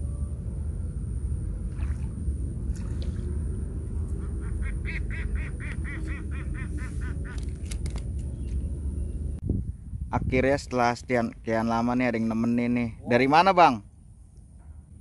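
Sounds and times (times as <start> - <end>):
steady low rumble: 0.0 - 15.0
duck quacking: 4.4 - 7.4
sharp clicks: 7.3 - 8.6.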